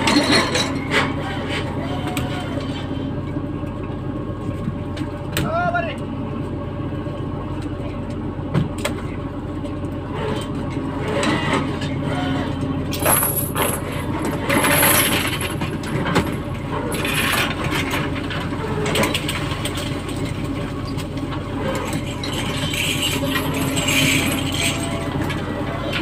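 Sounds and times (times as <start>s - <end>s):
boat engine droning: 0.0s - 26.0s
metallic clinks and knocks: 13.0s - 16.4s.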